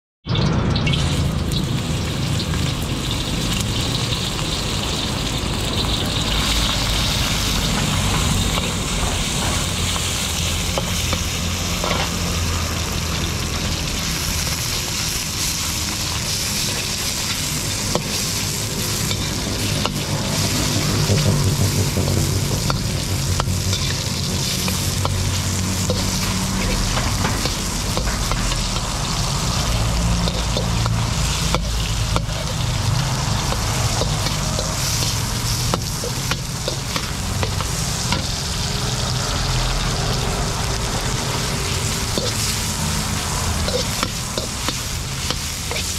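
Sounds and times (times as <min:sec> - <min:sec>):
meat sizzling in hot oil: 0:00.3 - 0:45.9
steady low rumble: 0:00.5 - 0:45.7
spatula scraping a wok: 0:06.2 - 0:40.1, 0:40.8 - 0:45.9.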